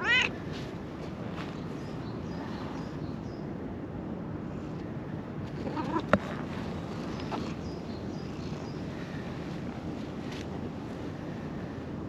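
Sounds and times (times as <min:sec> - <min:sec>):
cat meowing: 0:00.0 - 0:00.3
low outdoor background noise: 0:00.0 - 0:12.0.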